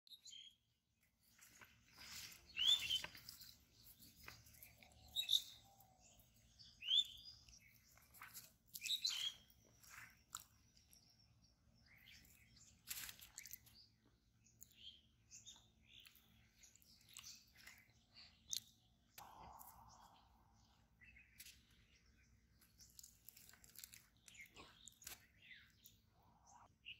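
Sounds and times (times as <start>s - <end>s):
short bird chirps: 1.9s - 11.2s, 14.6s - 26.9s.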